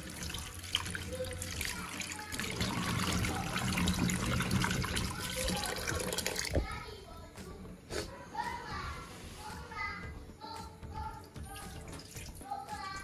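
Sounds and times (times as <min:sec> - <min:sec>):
tap water running into sink: 0:00.0 - 0:06.8.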